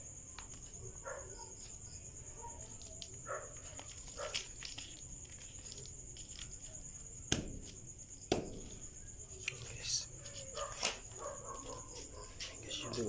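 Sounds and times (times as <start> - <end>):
crickets trilling: 0.0 - 13.0
faint dog barks: 0.8 - 4.5, 9.9 - 13.0.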